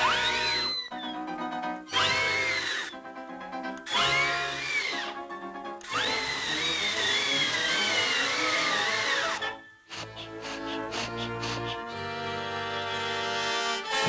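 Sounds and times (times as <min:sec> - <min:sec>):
orchestral music: 0:00.0 - 0:14.0.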